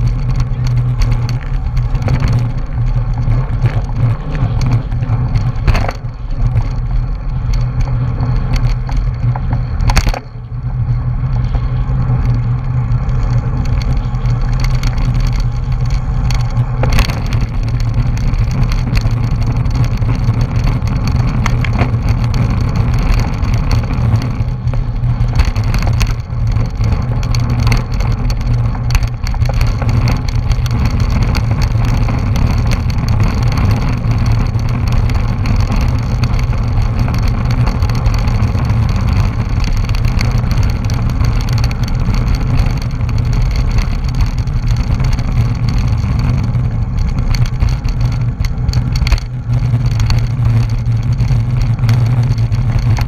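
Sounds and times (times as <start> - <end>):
bike tyre noise: 0.0 - 53.0
wind buffeting microphone: 0.0 - 53.0.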